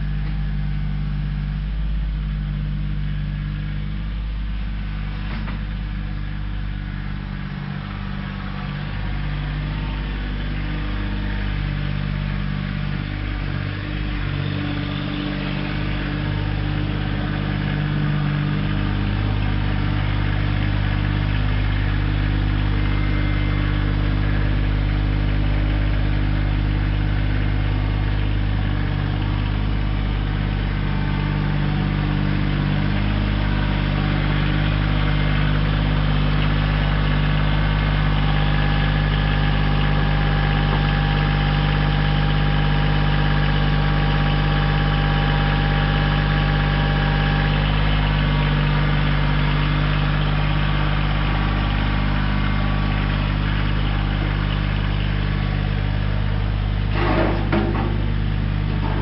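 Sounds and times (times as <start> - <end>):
high steady whine: 0.0 - 42.0
tractor diesel engine running: 0.0 - 59.0.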